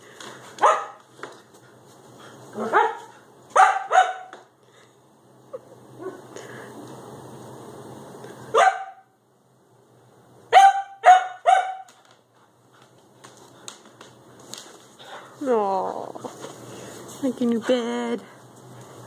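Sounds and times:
dog barking: 0:00.6 - 0:01.0, 0:02.6 - 0:04.4, 0:08.5 - 0:09.1, 0:10.5 - 0:11.9.

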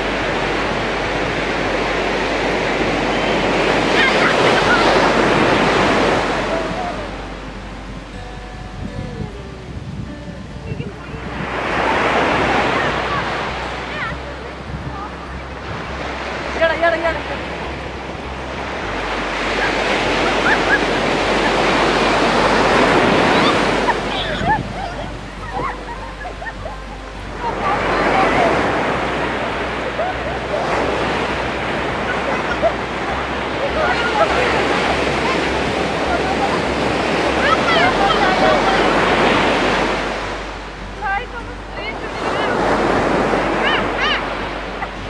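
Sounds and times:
sea surf breaking on beach: 0:00.0 - 0:45.0.

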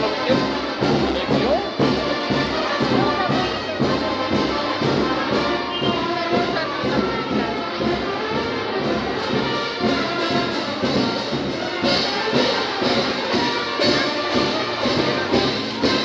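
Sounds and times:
brass band with trumpets: 0:00.0 - 0:16.0
steady drum beat: 0:00.0 - 0:16.0.

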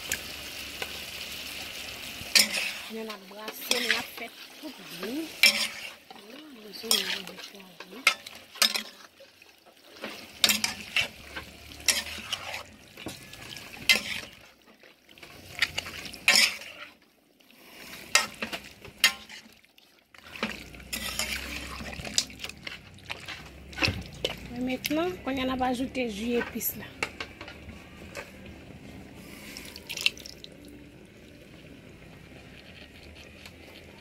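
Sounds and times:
meat sizzling in a pot: 0:00.0 - 0:34.0
metal spoon scraping a pot: 0:02.3 - 0:09.2, 0:09.8 - 0:14.5, 0:15.2 - 0:17.0, 0:17.6 - 0:19.5, 0:20.2 - 0:25.0.

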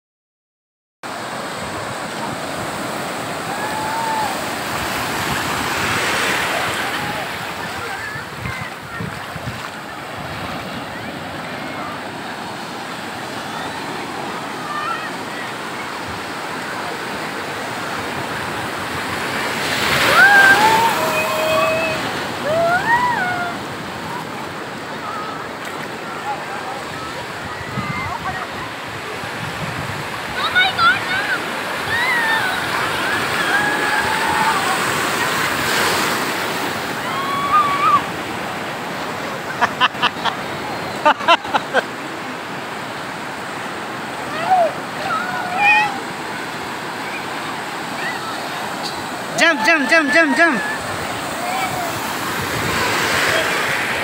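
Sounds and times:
sea surf washing: 0:01.1 - 0:54.0
person calling out: 0:49.3 - 0:50.8.

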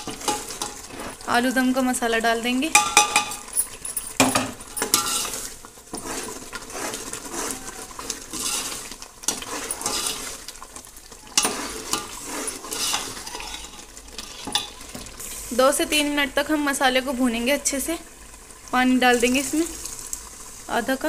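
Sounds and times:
metal ladle scraping pot: 0:00.0 - 0:01.2, 0:02.7 - 0:10.6, 0:11.3 - 0:15.0
oil sizzling: 0:00.0 - 0:21.0.

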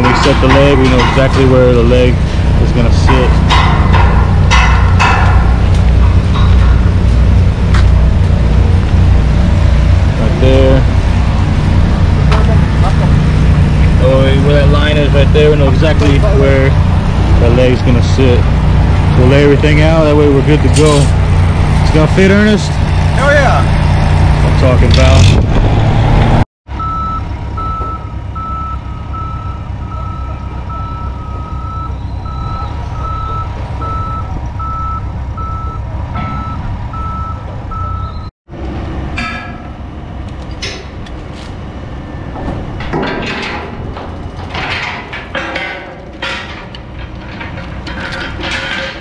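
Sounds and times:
diesel engine running: 0:00.0 - 0:49.0
chains clinking against metal: 0:20.6 - 0:21.2, 0:40.3 - 0:41.6, 0:44.3 - 0:49.0
backup alarm beeping: 0:26.8 - 0:38.3.

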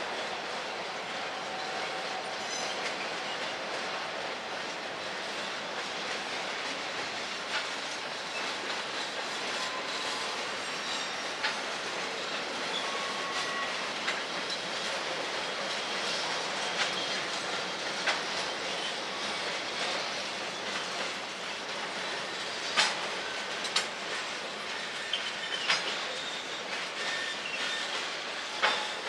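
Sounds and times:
freight train wheels on track: 0:00.0 - 0:29.0
high wheel squeals: 0:09.5 - 0:11.4, 0:12.1 - 0:13.9, 0:24.7 - 0:29.0
sharp rail clicks: 0:16.7 - 0:18.4, 0:22.7 - 0:24.0.

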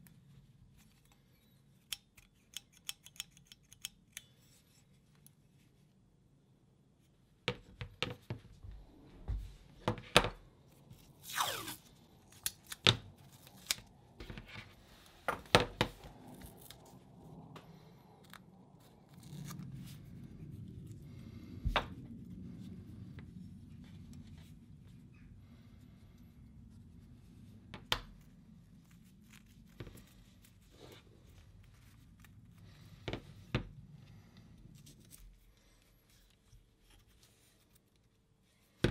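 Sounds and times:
metal pliers clicking: 0:01.8 - 0:04.4
tape peeling and tearing: 0:11.0 - 0:14.0, 0:18.2 - 0:20.0.

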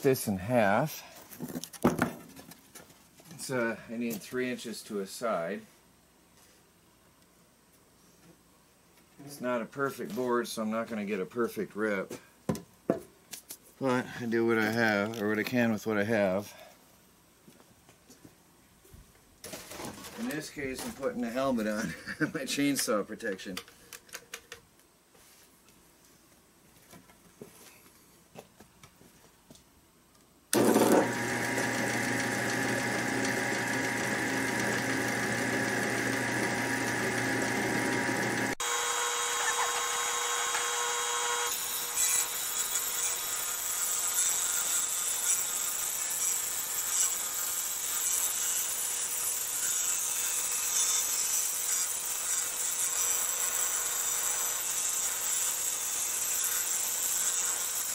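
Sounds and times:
saw blade ripping wood: 0:30.6 - 0:36.2
table saw motor running: 0:30.6 - 0:43.1.

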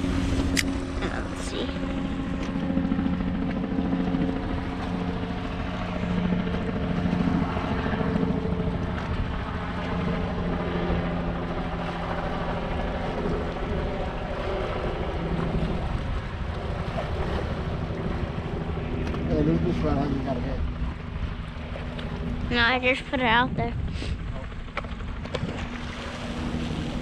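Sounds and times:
low engine drone: 0:00.0 - 0:27.0
wind noise on microphone: 0:22.2 - 0:27.0.

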